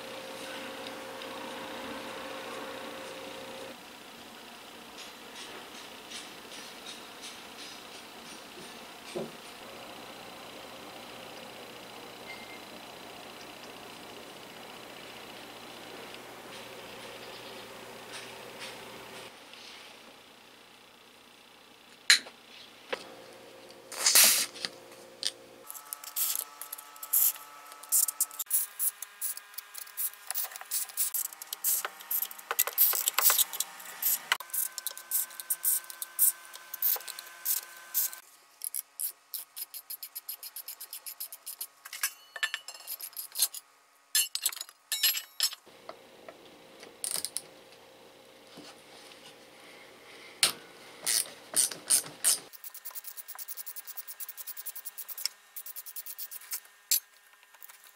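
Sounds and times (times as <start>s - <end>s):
tools clinking on metal: 41.9s - 42.9s, 44.2s - 45.6s.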